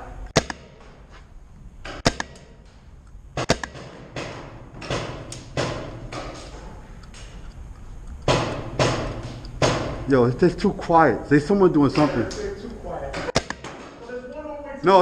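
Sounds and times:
paintball marker pops: 0.4s - 0.7s, 1.9s - 2.5s, 3.4s - 3.8s, 13.4s - 13.8s.

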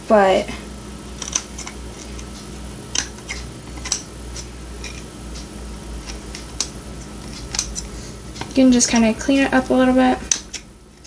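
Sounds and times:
scissors snipping tape: 1.2s - 2.3s, 2.9s - 9.1s, 10.2s - 11.0s.

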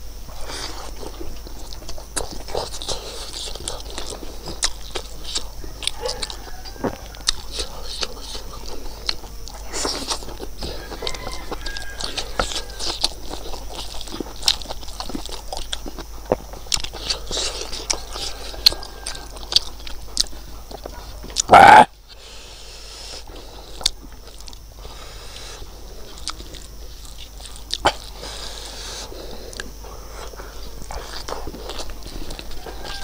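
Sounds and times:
man chewing food: 0.0s - 33.0s.

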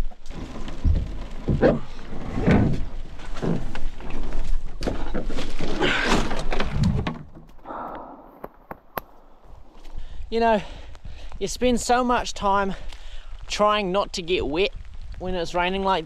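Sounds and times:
rain: 0.0s - 6.9s, 9.4s - 16.0s.

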